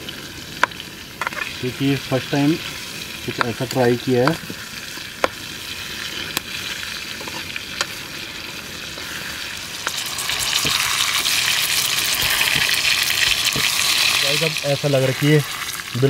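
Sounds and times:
food sizzling in hot oil: 0.0s - 16.0s
oil popping: 8.9s - 14.7s.

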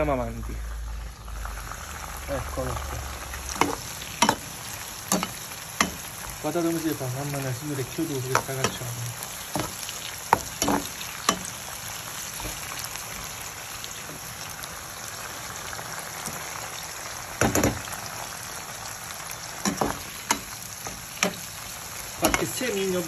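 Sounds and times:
peppers sizzling in oil: 0.0s - 23.0s.

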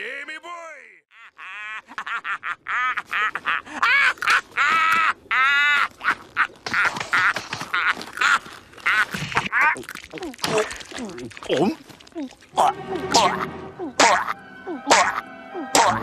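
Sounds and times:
cartoon laugh: 1.1s - 9.2s, 13.1s - 16.0s.

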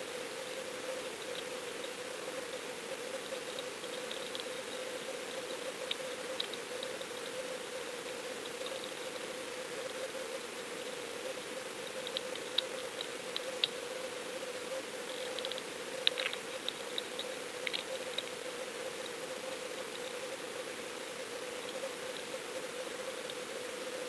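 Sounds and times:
small sharp clicks: 15.2s - 18.3s.

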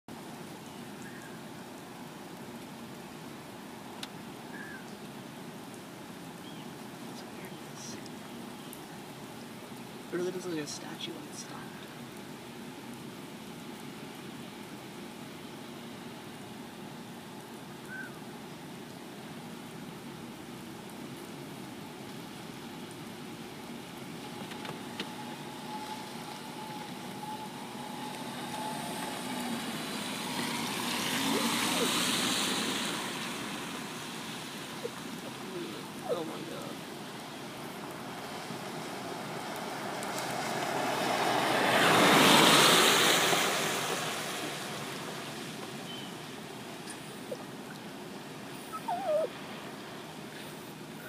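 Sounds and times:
traffic on wet roads: 0.1s - 51.0s
faint clicks: 4.0s - 4.2s.

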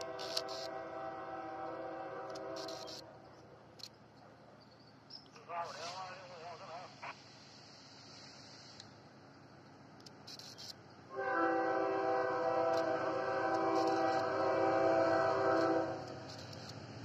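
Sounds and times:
locomotive air horn blast: 0.0s - 3.0s, 11.1s - 16.2s.

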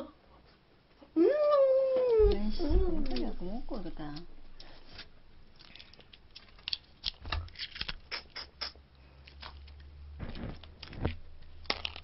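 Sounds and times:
crab shells cracking: 5.5s - 12.0s.

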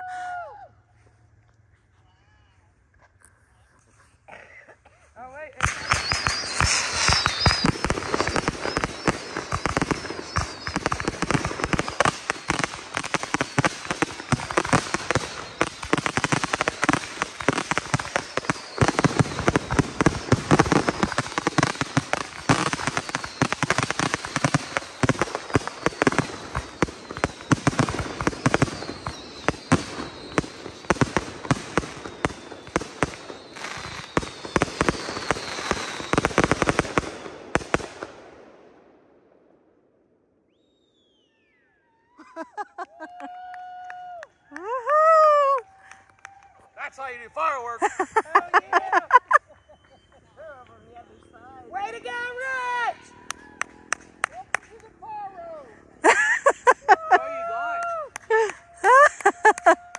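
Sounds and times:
fireworks barrage: 5.5s - 39.5s, 56.0s - 56.9s
crackling bursts: 5.6s - 38.8s, 51.8s - 55.2s
falling whistles: 5.7s - 36.6s, 40.5s - 42.4s, 49.4s - 51.5s.

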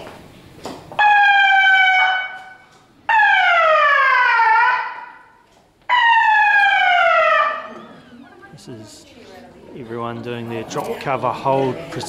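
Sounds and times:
siren-like alarm falling tones: 1.0s - 8.3s.

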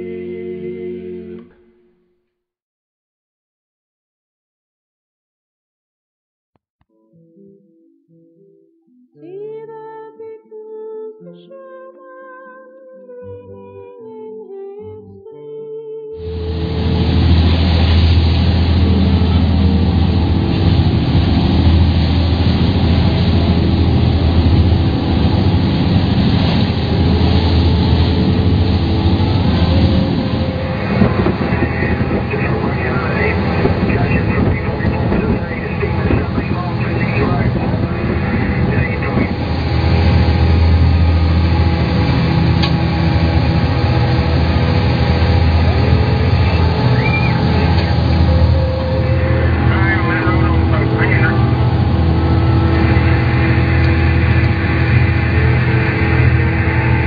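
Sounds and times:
boat engine droning: 0.0s - 2.0s, 16.2s - 57.0s
rushing water: 16.3s - 57.0s.

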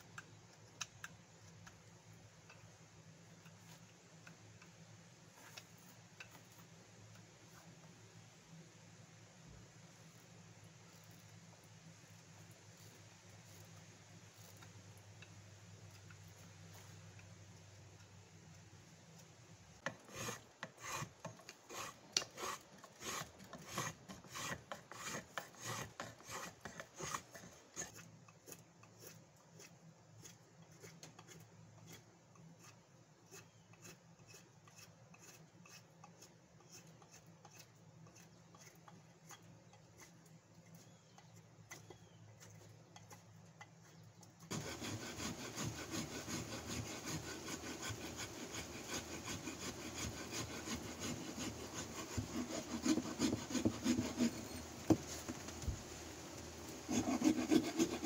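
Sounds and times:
knife shaving wood: 3.3s - 8.0s, 10.0s - 17.3s, 19.1s - 58.0s
rasping on wooden handle: 19.8s - 32.0s, 32.6s - 55.5s, 56.9s - 58.0s.

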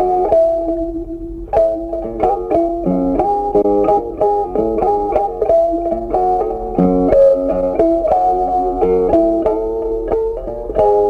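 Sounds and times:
plucked guitar melody: 0.0s - 11.0s.

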